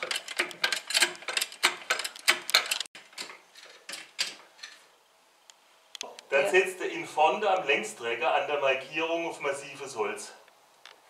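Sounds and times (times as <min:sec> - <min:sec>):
floor jack pumping clicks: 0:00.0 - 0:04.8.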